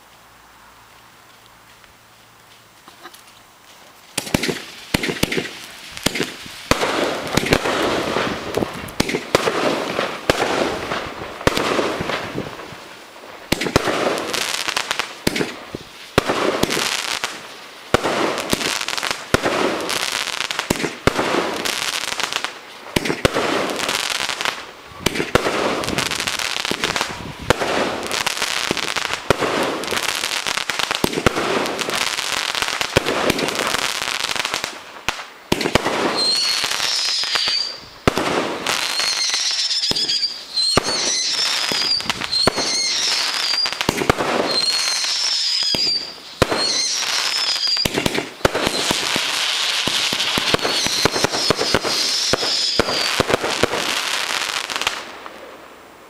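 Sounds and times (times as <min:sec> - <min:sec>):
firework crackling hiss: 0:00.0 - 0:56.0
firework launch bangs: 0:04.2 - 0:12.6, 0:13.5 - 0:18.7, 0:22.9 - 0:23.9, 0:34.6 - 0:54.0.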